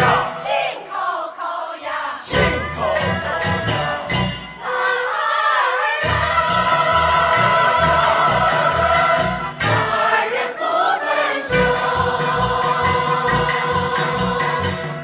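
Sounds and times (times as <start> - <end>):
mixed choir singing: 0.0 - 15.0
instrumental accompaniment: 2.3 - 5.2, 6.0 - 15.0.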